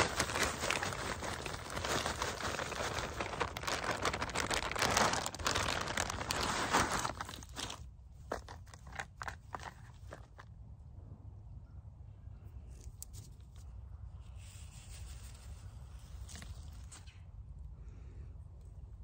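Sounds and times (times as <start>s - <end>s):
soil pouring: 0.0s - 10.3s
plastic bag crinkling: 0.0s - 10.4s
soil crackling pressed by hand: 0.0s - 10.5s.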